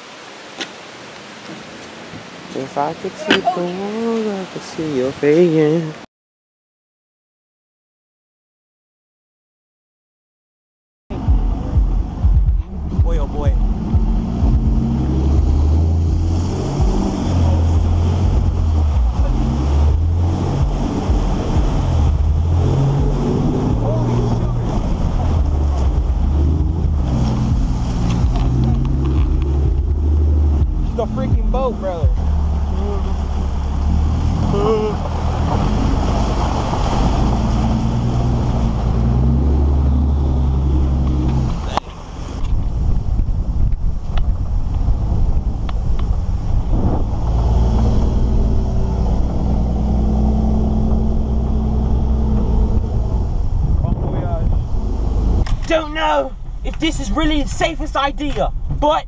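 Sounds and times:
water spraying and sloshing: 0.0 - 5.9, 15.3 - 30.0, 31.9 - 43.1
wind buffeting microphone: 11.1 - 56.7.

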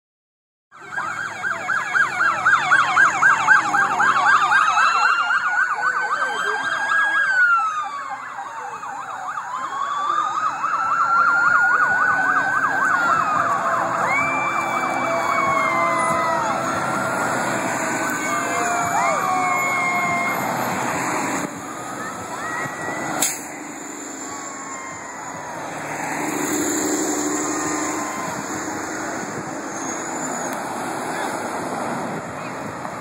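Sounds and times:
police sirens wailing and yelping: 0.8 - 33.0.

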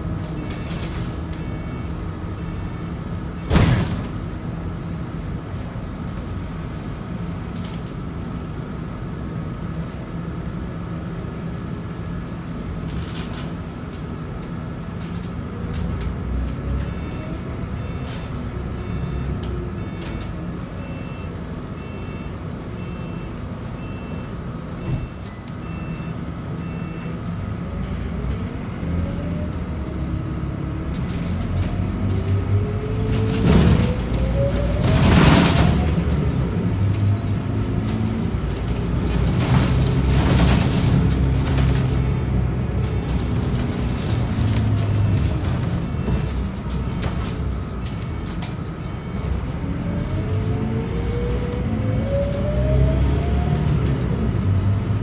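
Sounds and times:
bus diesel engine running: 0.0 - 55.0
short high beeps: 1.4 - 2.9, 16.8 - 27.2.

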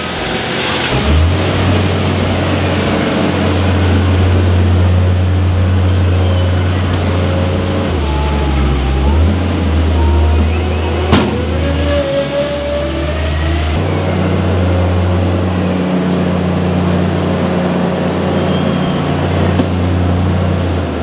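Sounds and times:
diesel engines running: 0.0 - 21.0.

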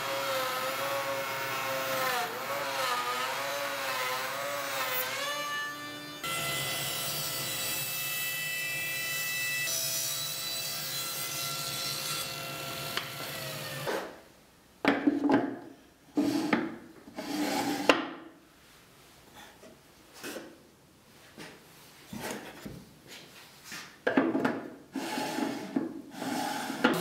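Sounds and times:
table saw cutting wood: 0.0 - 14.1, 25.0 - 27.0.

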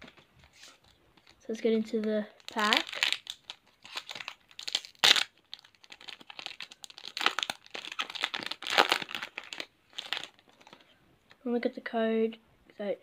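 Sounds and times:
foil wrapper crinkling and tearing: 0.5 - 10.8.

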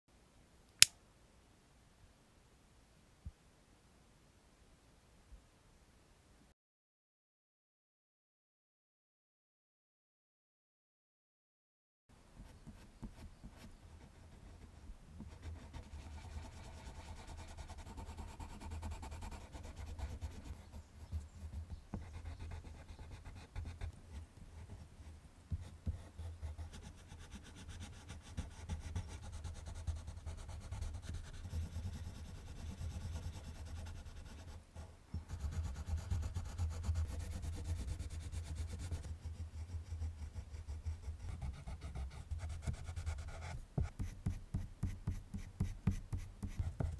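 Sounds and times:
colored pencil scratching on paper: 12.4 - 46.9.

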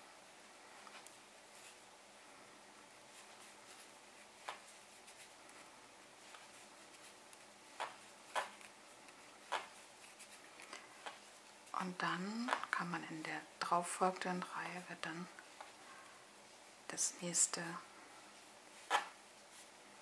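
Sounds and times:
faint room hiss: 0.0 - 20.0.

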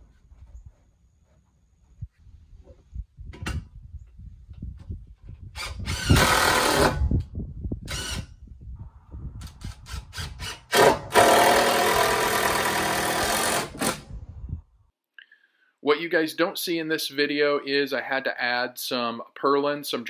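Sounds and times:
cordless drill driving screw: 5.6 - 7.0, 7.9 - 8.3, 9.4 - 14.0.

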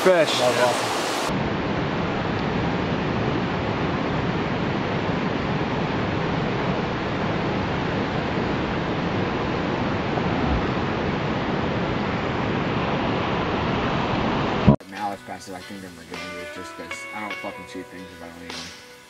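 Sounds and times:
stream water rushing over rocks: 0.0 - 1.3.

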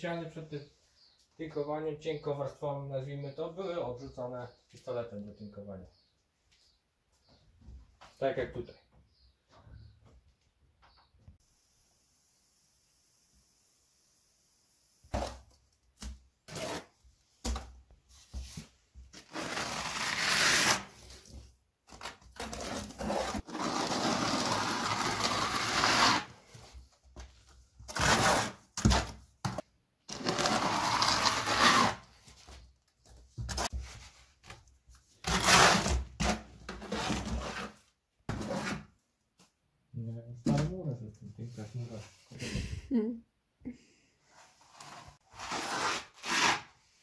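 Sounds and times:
steel trowel scraping plaster: 19.2 - 21.0, 22.4 - 26.4, 30.2 - 32.0, 35.3 - 38.9, 44.8 - 46.8.

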